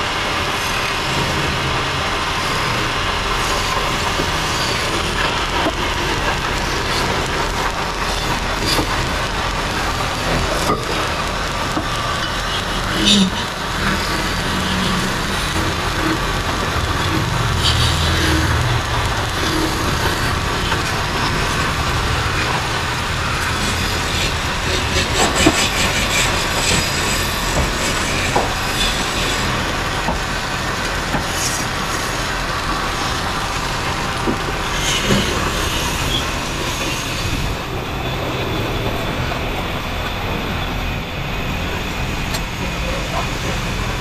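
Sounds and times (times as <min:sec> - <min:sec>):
wood-turning lathes running: 0:00.0 - 0:44.0.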